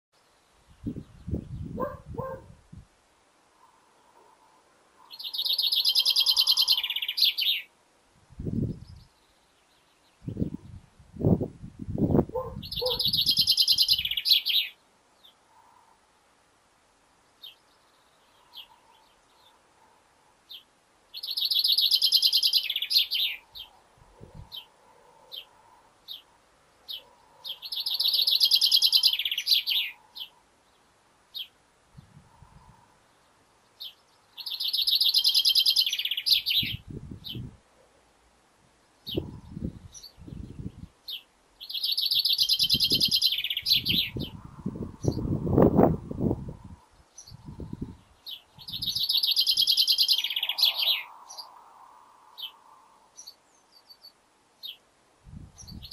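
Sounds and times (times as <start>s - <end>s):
chaffinch singing: 5.0s - 7.7s, 12.3s - 15.4s, 20.5s - 23.8s, 25.3s - 31.6s, 33.2s - 37.5s, 39.0s - 51.6s, 55.6s - 55.9s.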